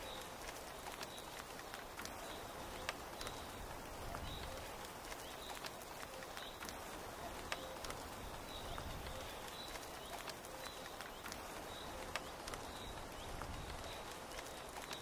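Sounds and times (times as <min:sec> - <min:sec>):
rain pattering on tent canvas: 0:00.0 - 0:15.0.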